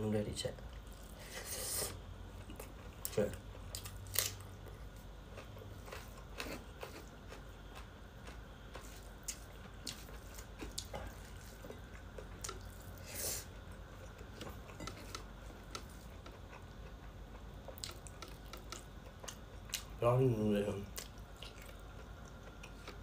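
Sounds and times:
person chewing: 0:00.7 - 0:20.0, 0:20.9 - 0:23.0.

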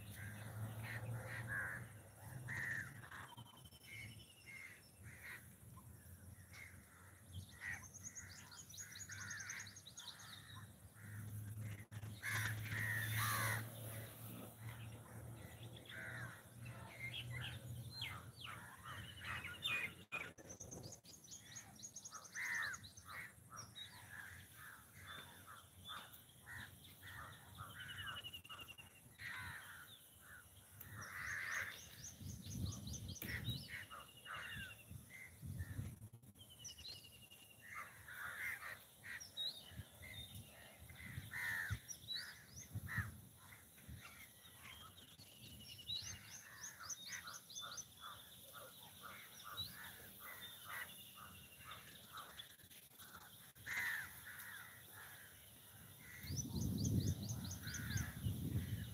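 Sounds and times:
small birds chirping and trilling: 0:00.0 - 0:58.9
crows cawing: 0:00.1 - 0:03.4, 0:12.2 - 0:14.0, 0:15.9 - 0:16.5, 0:22.3 - 0:32.0, 0:33.2 - 0:35.4, 0:37.6 - 0:39.4, 0:40.9 - 0:44.4, 0:53.5 - 0:56.4, 0:57.6 - 0:58.8.

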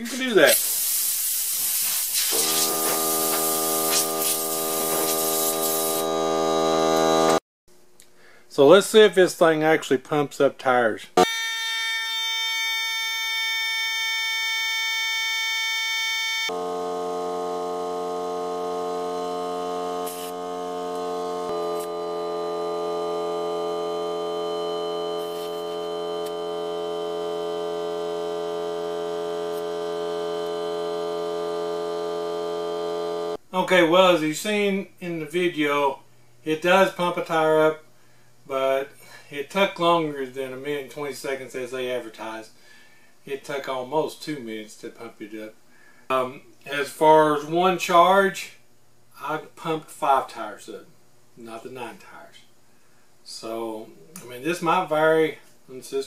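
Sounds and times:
compressed air hissing: 0:00.0 - 0:06.0
air compressor running: 0:00.1 - 0:07.4, 0:16.5 - 0:33.4.

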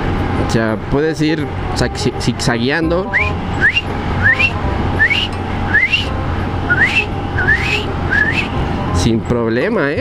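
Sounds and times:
rising whistle-like chirp: 0:03.1 - 0:08.6.

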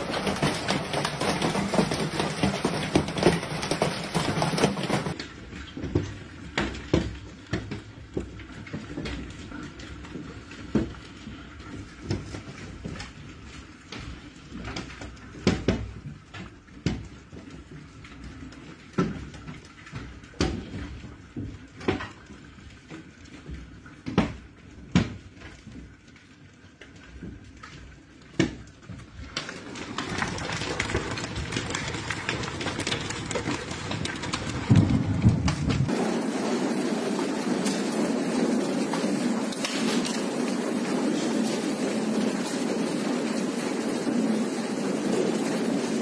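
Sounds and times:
heavy hail and rain rushing: 0:00.0 - 0:05.2, 0:29.4 - 0:46.0
hailstones knocking hard surfaces: 0:00.0 - 0:13.2, 0:28.4 - 0:46.0.

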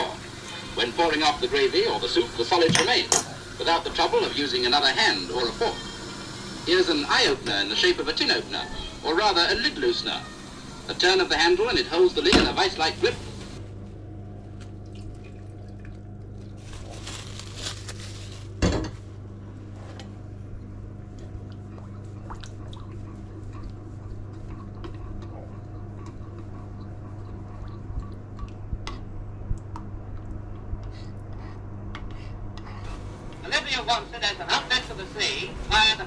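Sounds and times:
steady low hum: 0:00.0 - 0:36.0
utensils and dishes clattering: 0:02.6 - 0:03.4
liquid sounds: 0:14.3 - 0:17.6, 0:20.5 - 0:30.8.

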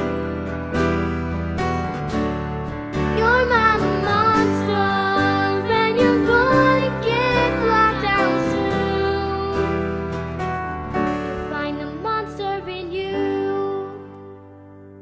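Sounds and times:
girl singing: 0:00.0 - 0:01.1, 0:03.1 - 0:09.8, 0:11.3 - 0:14.4
instrumental accompaniment: 0:00.0 - 0:15.0.

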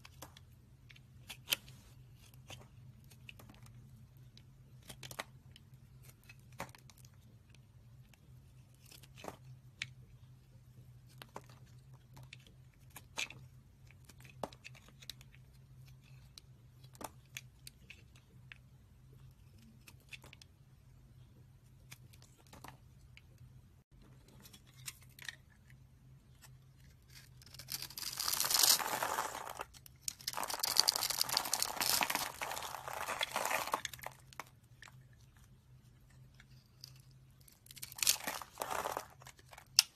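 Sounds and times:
soap cubes crunching: 0:27.1 - 0:34.5, 0:37.7 - 0:39.9.

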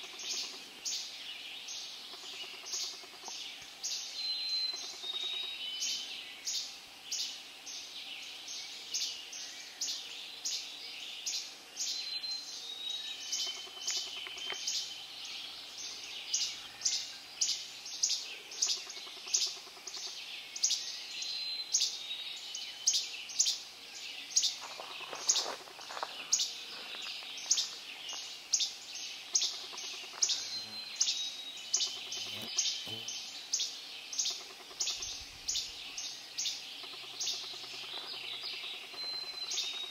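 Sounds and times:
songbirds chipping: 0:00.0 - 0:39.9.

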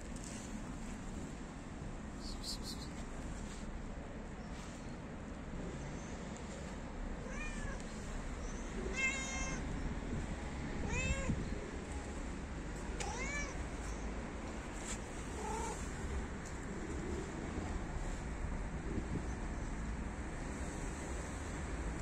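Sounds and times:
cat meowing: 0:07.2 - 0:07.8, 0:08.8 - 0:09.7, 0:10.8 - 0:11.4, 0:13.0 - 0:13.6, 0:15.3 - 0:15.9.

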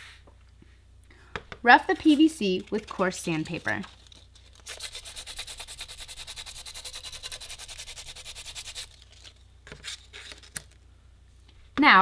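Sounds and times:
sandpaper rasping on plastic pipe: 0:04.5 - 0:09.0.

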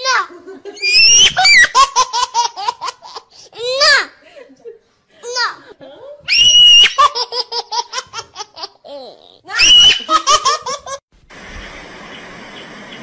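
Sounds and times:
high-pitched giggling laughter: 0:06.8 - 0:11.0
background hiss: 0:10.8 - 0:13.0.

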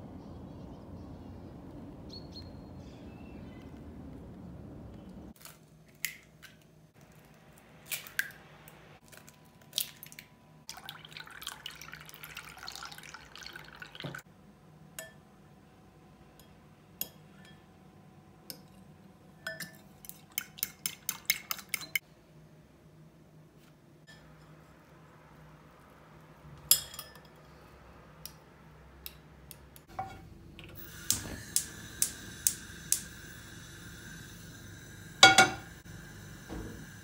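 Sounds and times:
liquid splashing into bowl: 0:09.0 - 0:14.2.

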